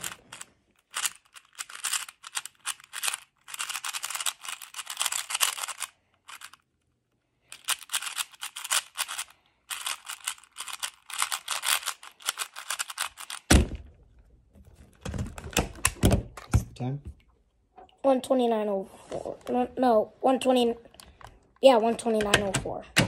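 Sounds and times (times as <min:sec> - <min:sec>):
puzzle cube plastic clicking: 0:00.0 - 0:06.7, 0:07.4 - 0:13.7, 0:15.3 - 0:16.5, 0:22.0 - 0:23.0
cube thumping down: 0:10.6 - 0:14.0, 0:14.9 - 0:16.7.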